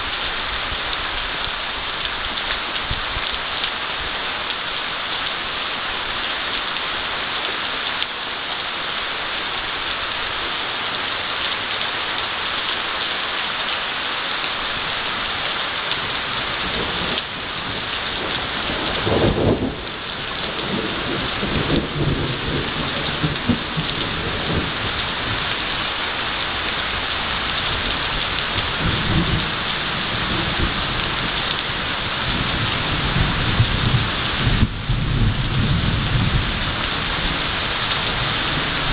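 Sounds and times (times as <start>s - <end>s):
heavy rain pouring: 0.0s - 38.9s
thunder rumbling: 15.9s - 25.9s, 26.6s - 38.9s.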